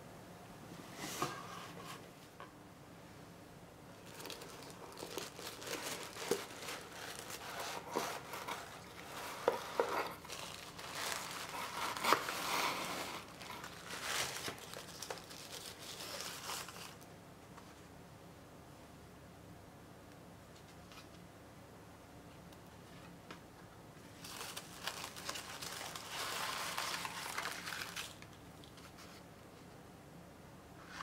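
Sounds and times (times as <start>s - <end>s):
tissue paper crinkling: 4.0s - 17.0s, 24.1s - 29.2s.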